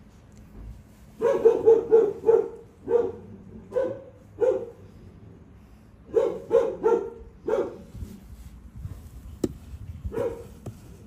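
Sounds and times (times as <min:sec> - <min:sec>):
dog barking: 0:01.2 - 0:04.8, 0:06.1 - 0:07.9, 0:10.1 - 0:10.5.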